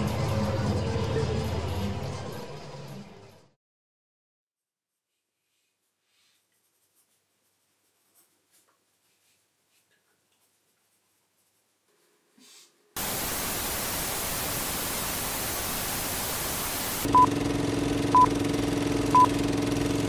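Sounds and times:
loud static hiss: 13.0s - 17.2s.

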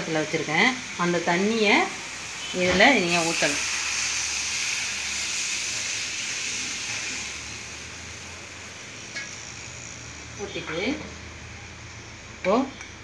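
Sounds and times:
liquid pouring into hot pan: 2.1s - 10.1s.

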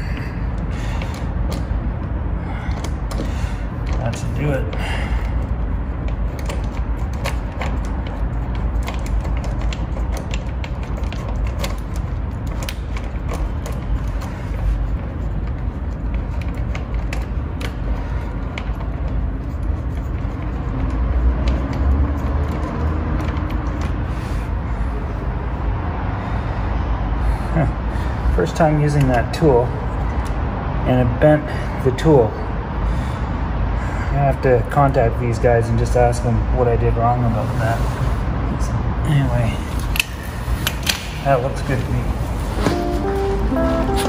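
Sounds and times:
steady low hum: 0.0s - 34.7s.

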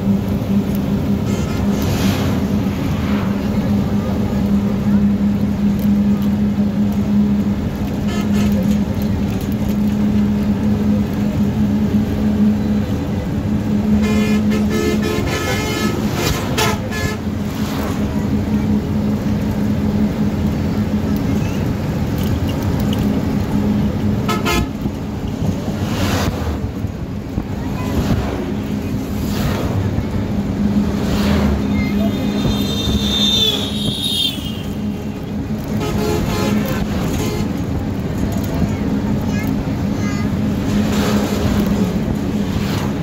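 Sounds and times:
vehicle engine and road noise: 0.0s - 43.0s
vehicle horns: 8.0s - 8.8s, 13.9s - 17.4s, 24.2s - 25.0s, 31.7s - 37.7s.

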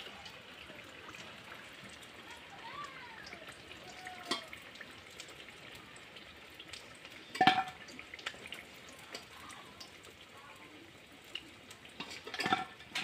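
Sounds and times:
hot oil sizzling: 0.0s - 13.0s
metal spoon clanging on pan: 12.0s - 13.0s.

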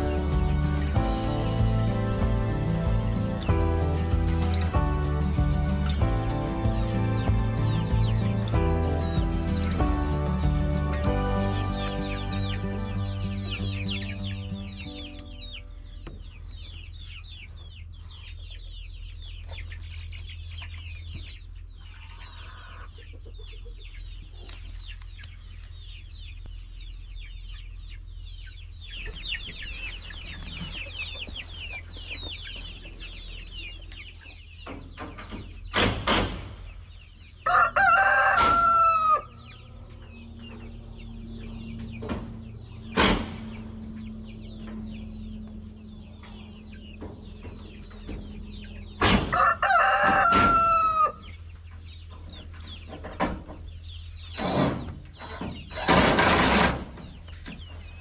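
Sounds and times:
chickens clucking and chirping: 0.0s - 58.0s
rooster crowing: 37.4s - 39.5s, 49.3s - 51.2s
sharp knocks: 42.0s - 43.7s, 49.0s - 49.4s.

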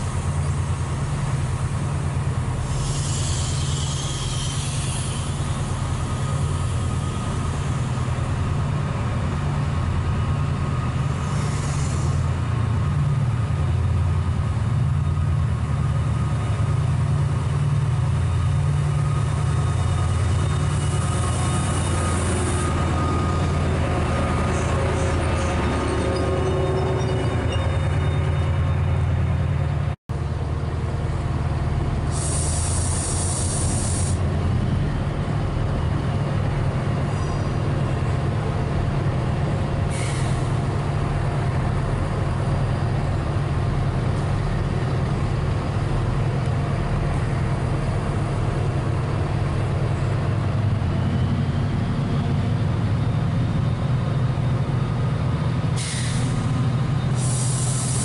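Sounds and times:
air brakes hissing: 2.6s - 7.8s, 11.1s - 12.4s, 32.1s - 34.3s, 39.9s - 40.7s, 55.8s - 58.0s.

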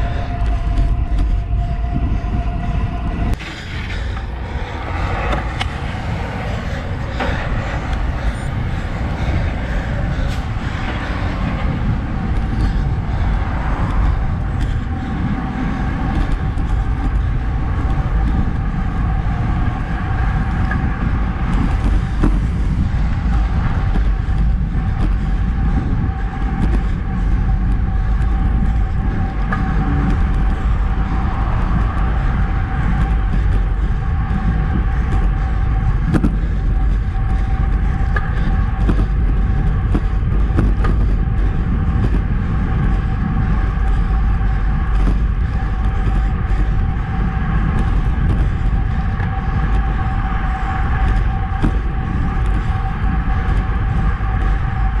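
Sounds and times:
truck passing: 0.0s - 36.0s
tyre and road noise: 0.0s - 55.0s
wind rushing over microphone: 0.0s - 55.0s.

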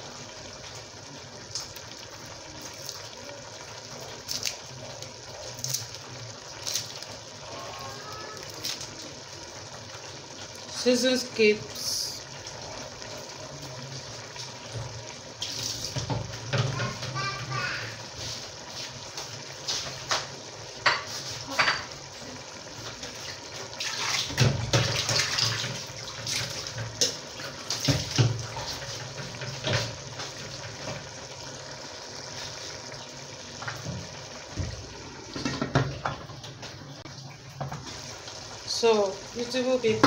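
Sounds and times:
pots and utensils clinking: 19.2s - 22.1s, 23.9s - 31.2s, 33.6s - 36.8s.

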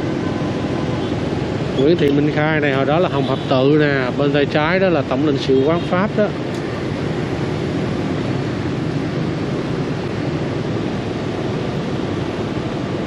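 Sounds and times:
street traffic: 0.0s - 13.0s.

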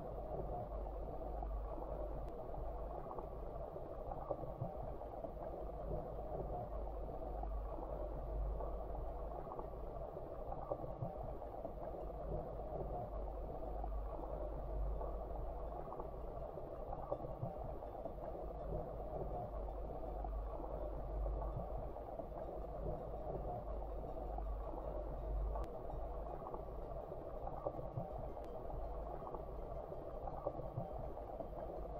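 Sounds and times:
muffled underwater stream rush: 0.0s - 31.9s
faint clicks: 2.1s - 3.4s, 16.9s - 31.9s.

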